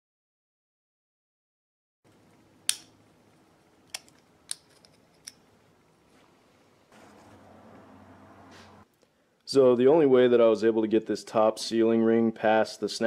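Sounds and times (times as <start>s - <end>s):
sharp metallic clicks: 2.7s - 3.0s.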